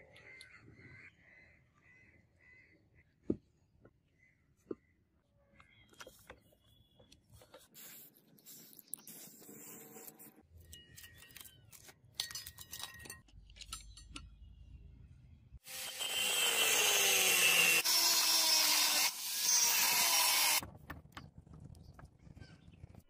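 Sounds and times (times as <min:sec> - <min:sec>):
angle grinder cutting iron plate: 0:15.6 - 0:20.6.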